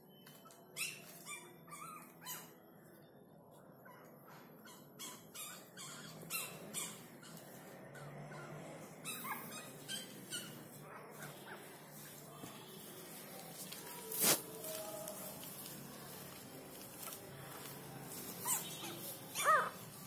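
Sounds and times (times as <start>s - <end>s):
newborn puppies squealing: 3.9s - 11.6s, 18.4s - 19.8s.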